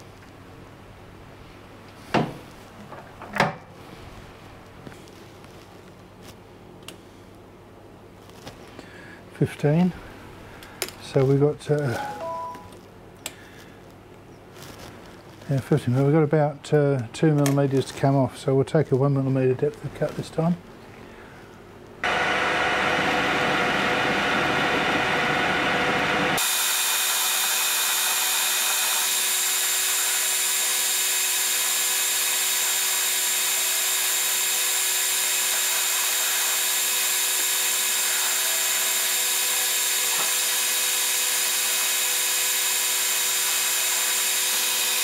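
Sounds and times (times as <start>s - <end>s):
metal lathe whirring: 22.0s - 45.0s.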